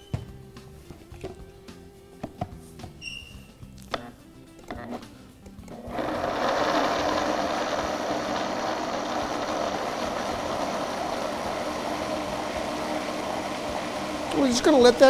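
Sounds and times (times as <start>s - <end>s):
blender running: 5.7s - 15.0s.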